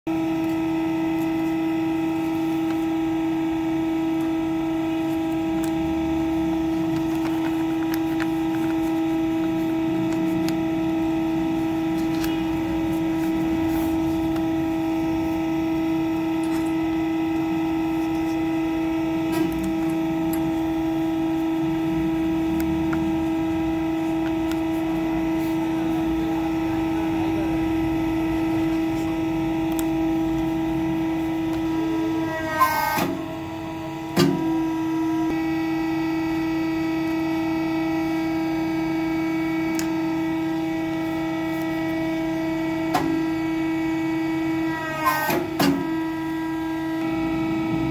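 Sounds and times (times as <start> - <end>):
hydraulic press motor humming: 0.1 - 47.9
paper rustling: 0.4 - 18.5, 19.2 - 26.6.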